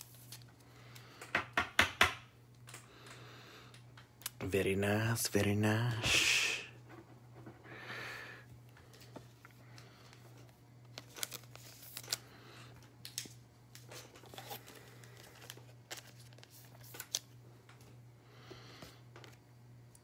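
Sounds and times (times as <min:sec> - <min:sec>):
low steady hum: 0:02.2 - 0:20.0
foil wrapper crinkling and tearing: 0:10.8 - 0:17.4.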